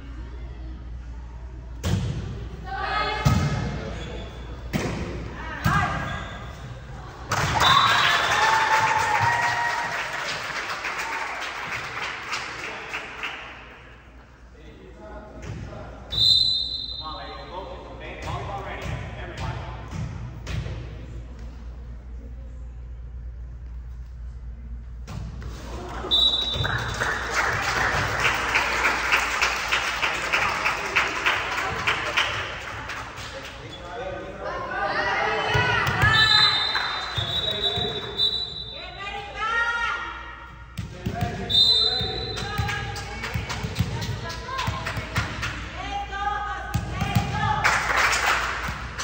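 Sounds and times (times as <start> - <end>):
spectators cheering and clapping: 7.3 - 13.6, 25.7 - 33.2
high whistle: 16.1 - 17.2, 26.1 - 26.7, 36.0 - 38.9, 41.5 - 42.4.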